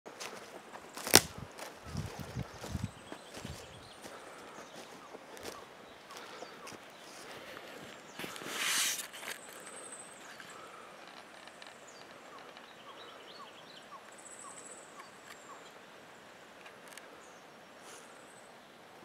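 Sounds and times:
wind noise on microphone: 0:01.1 - 0:03.9
birds whistling: 0:01.9 - 0:15.8.

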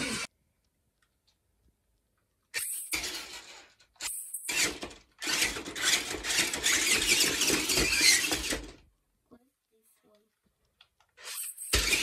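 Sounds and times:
toy truck electric motor: 0:00.0 - 0:00.3, 0:02.6 - 0:08.8, 0:11.2 - 0:12.0.

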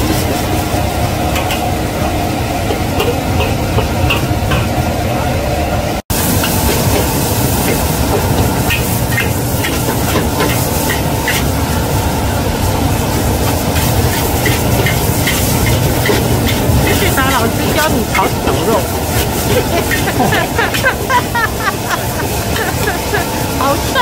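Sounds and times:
meat sizzling in a wok: 0:00.0 - 0:04.8, 0:06.1 - 0:24.0
gas burner rumble: 0:00.0 - 0:24.0
metal spatula scraping a pan: 0:13.8 - 0:17.3, 0:18.0 - 0:20.9.

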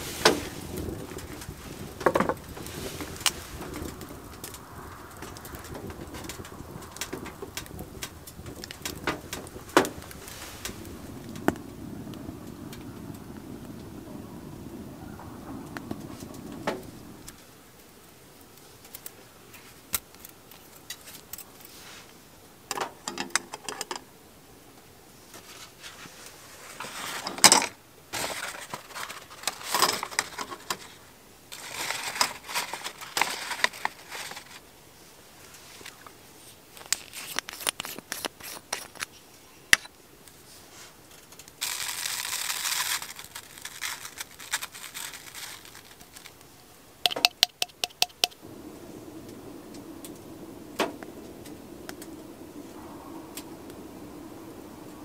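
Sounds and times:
crinkling and tearing: 0:28.2 - 0:34.7, 0:36.7 - 0:39.2, 0:41.1 - 0:46.7
sharp clicks: 0:47.1 - 0:48.4.

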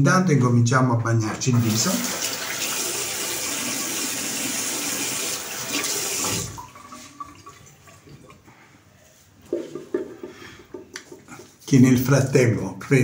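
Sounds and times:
water running from sink tap: 0:01.4 - 0:07.8.

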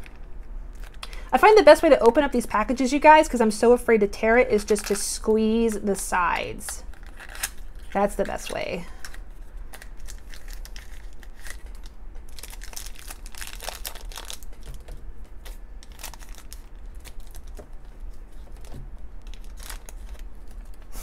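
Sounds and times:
foil bag crinkling: 0:04.6 - 0:21.0.

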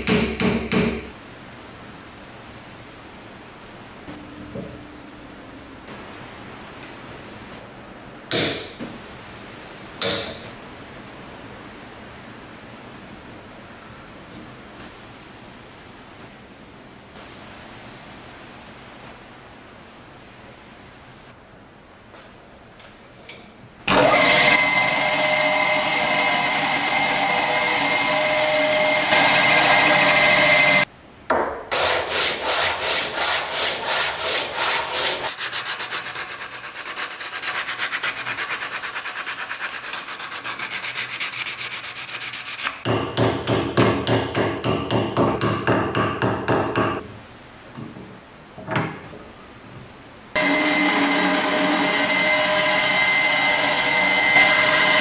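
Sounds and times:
sandpaper sanding wood: 0:31.7 - 0:42.9.

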